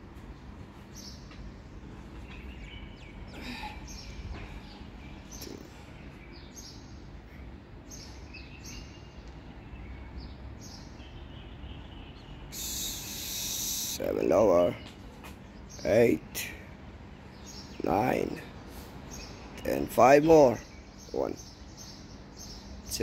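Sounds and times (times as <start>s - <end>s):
small birds chirping: 0.3s - 23.0s
loud hiss: 12.5s - 14.0s.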